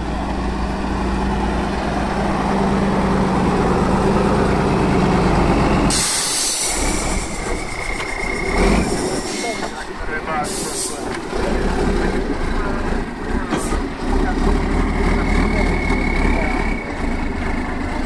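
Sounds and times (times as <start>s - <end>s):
diesel truck engine droning: 0.0s - 18.0s
compressed air hissing: 5.9s - 7.5s
thin high whistle: 15.4s - 17.0s.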